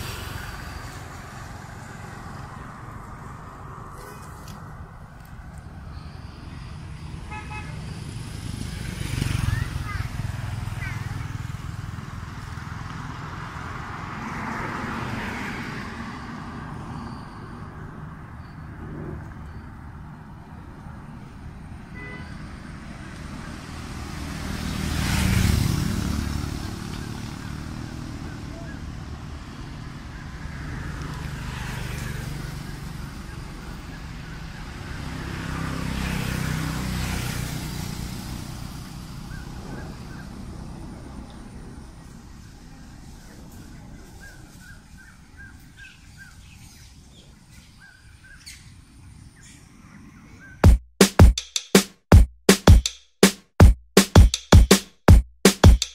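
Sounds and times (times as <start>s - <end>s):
rushing noise of passing vehicle: 0.0s - 50.6s
vehicle engine rumble passing: 22.4s - 45.8s.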